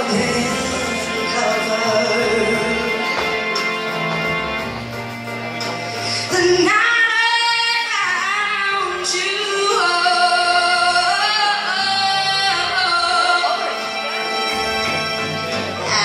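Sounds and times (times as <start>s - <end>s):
woman singing into a microphone: 0.0s - 3.0s, 6.2s - 13.8s
instrumental accompaniment: 0.0s - 16.0s.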